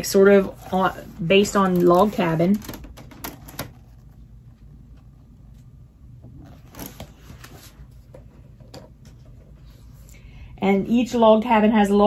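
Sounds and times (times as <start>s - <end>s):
book pages turning: 0.1s - 4.7s, 6.4s - 10.1s.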